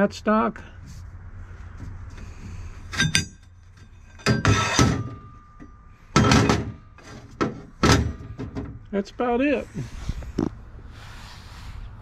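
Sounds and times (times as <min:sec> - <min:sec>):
steel bars clanking: 0:02.2 - 0:08.9.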